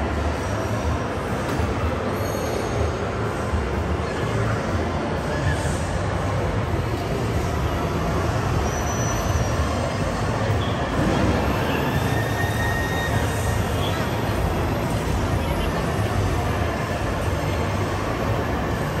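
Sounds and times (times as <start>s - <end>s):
crowd noise: 0.0s - 19.0s
faint high squeal: 2.2s - 2.8s, 8.6s - 14.3s.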